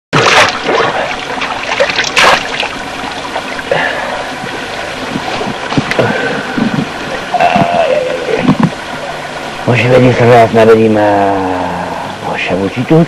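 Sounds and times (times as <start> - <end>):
hands splashing water: 0.2 - 3.6
water trickling over stones: 0.2 - 11.8.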